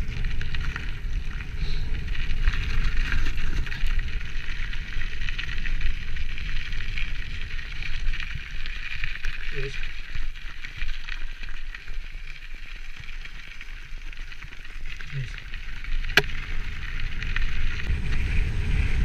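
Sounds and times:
wind rushing over microphone: 17.2s - 19.0s.

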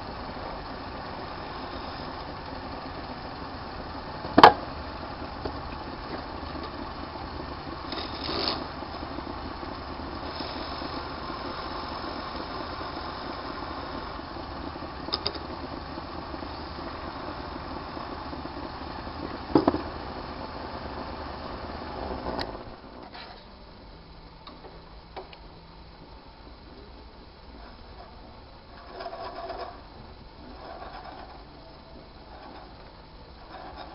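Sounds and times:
lathe running: 0.0s - 23.0s, 27.4s - 33.9s.

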